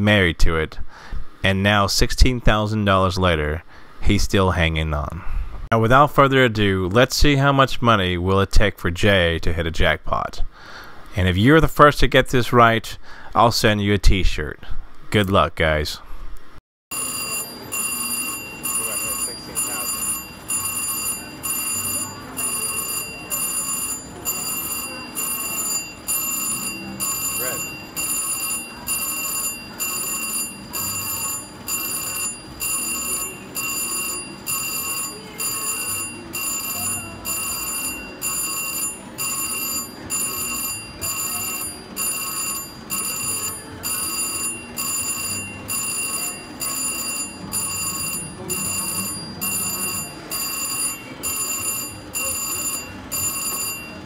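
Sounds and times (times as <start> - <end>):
slot machine bell-like chime: 16.9 - 54.0.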